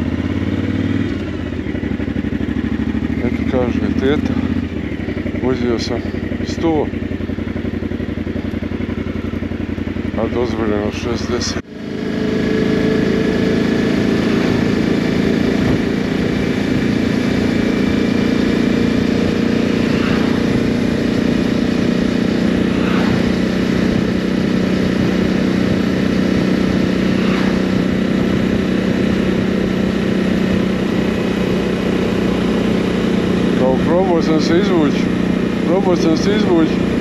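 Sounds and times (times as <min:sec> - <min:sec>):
motorcycle engine running: 0:00.0 - 0:37.0
wind and road noise: 0:00.0 - 0:37.0.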